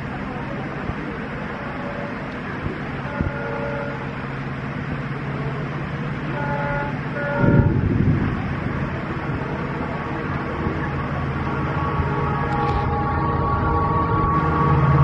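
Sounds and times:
diesel locomotive engine drone: 0.0s - 15.0s
locomotive horn toots: 1.6s - 2.4s, 3.0s - 4.2s, 6.3s - 8.0s, 9.4s - 15.0s
loud low rumble: 4.0s - 15.0s.

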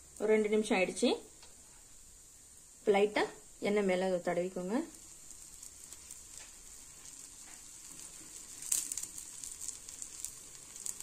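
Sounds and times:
oil sizzling: 0.0s - 11.0s
oil crackling: 3.8s - 11.0s.

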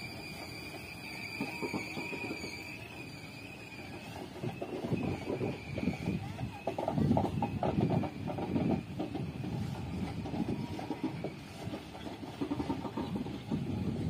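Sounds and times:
train low rumble: 0.0s - 14.0s
train wheels knocking on rail joints: 1.4s - 2.6s, 4.2s - 14.0s.

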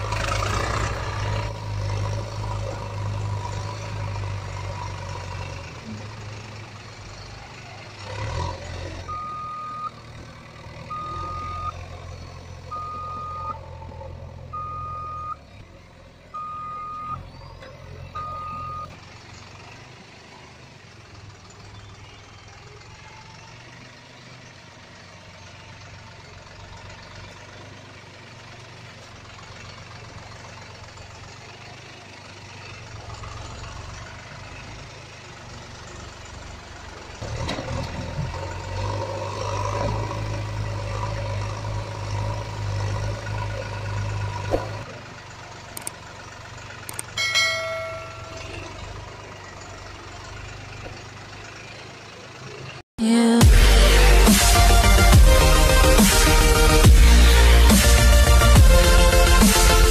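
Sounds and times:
low engine rumble: 0.0s - 59.9s
truck reversing alarm beeping: 1.2s - 15.6s, 16.2s - 19.4s, 46.9s - 50.8s.

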